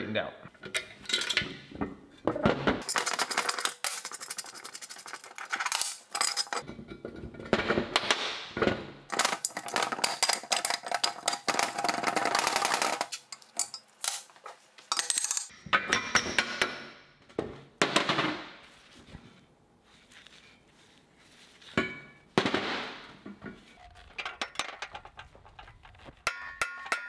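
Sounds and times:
metal tools clinking on steel table: 2.8 - 7.2, 9.2 - 16.6.

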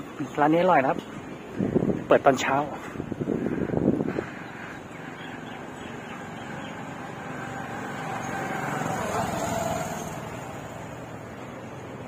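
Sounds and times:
street noise: 0.0 - 12.0
motor vehicle passing: 2.9 - 12.0.

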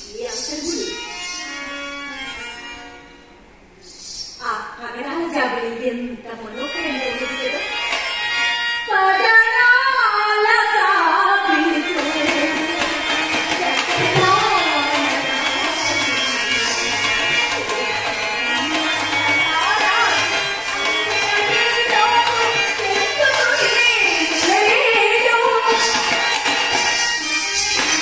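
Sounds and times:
sustained instrumental accompaniment: 6.2 - 28.0
tabla beat: 11.4 - 28.0.

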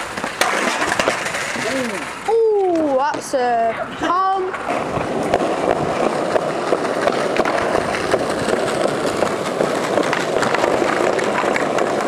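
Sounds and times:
wheels clicking over joints: 0.0 - 3.4, 4.5 - 12.0
skateboard wheels rolling: 0.0 - 12.0.

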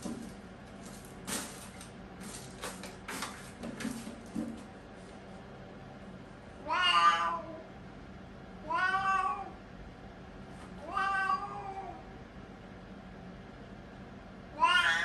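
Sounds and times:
cat meowing: 6.6 - 7.6, 8.6 - 9.6, 10.8 - 12.0, 14.6 - 15.0.

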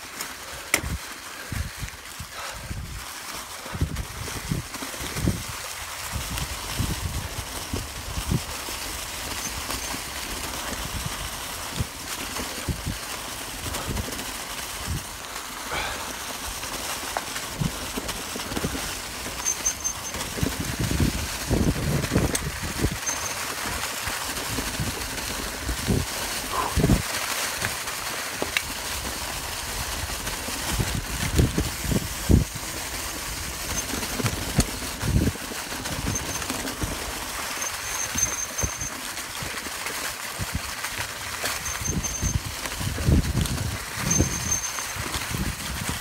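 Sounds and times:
bike tyres rushing through leaves: 0.0 - 46.0.

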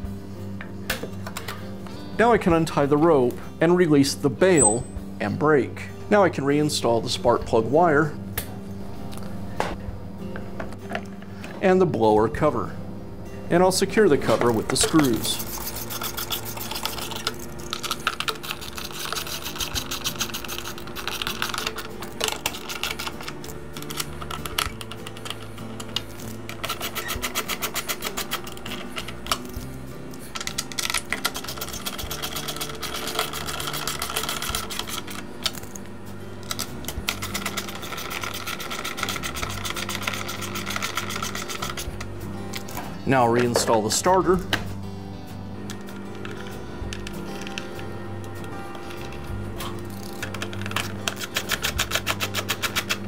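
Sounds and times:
background music: 0.0 - 53.0
rapid clicking of hand tool: 37.0 - 41.9, 50.3 - 53.0.

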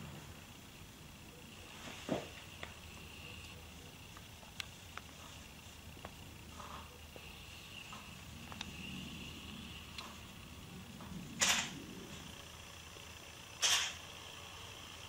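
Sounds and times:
light ticks: 8.4 - 8.8.

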